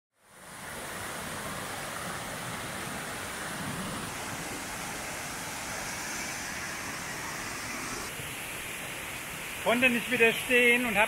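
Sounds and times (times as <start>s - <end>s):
waterfall rushing over rocks: 0.2s - 11.0s.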